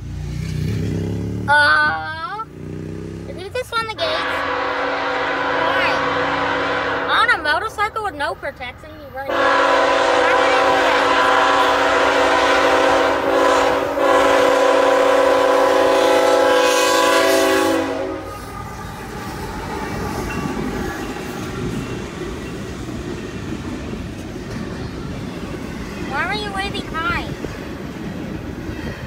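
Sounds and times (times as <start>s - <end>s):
train wheels rumbling on rails: 0.0s - 29.0s
locomotive air horn blasts: 4.0s - 7.9s, 9.3s - 18.5s.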